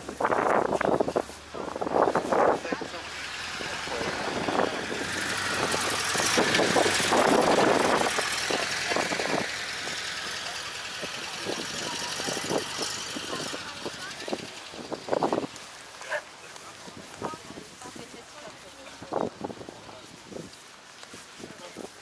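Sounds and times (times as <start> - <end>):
people's voices: 0.0 - 22.0
car engine driving past: 2.8 - 15.7.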